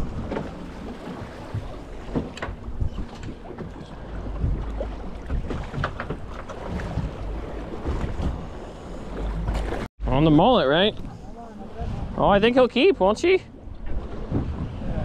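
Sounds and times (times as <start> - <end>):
wind buffeting microphone: 0.0 - 9.7, 13.6 - 15.0
water lapping against boat hull: 0.0 - 10.0, 10.8 - 15.0.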